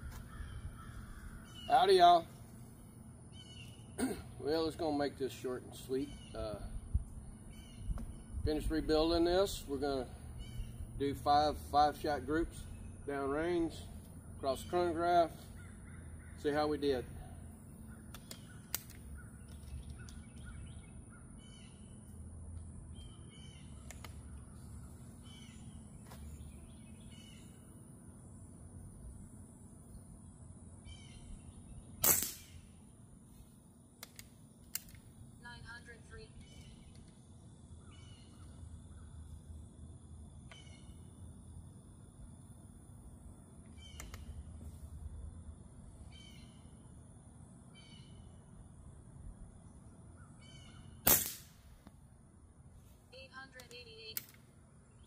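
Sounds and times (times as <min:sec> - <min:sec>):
birds chirping: 0:00.0 - 0:33.6, 0:34.4 - 0:44.6, 0:49.5 - 0:51.0
steady low rumble: 0:00.0 - 0:50.3
faint insect hum: 0:00.0 - 0:55.0.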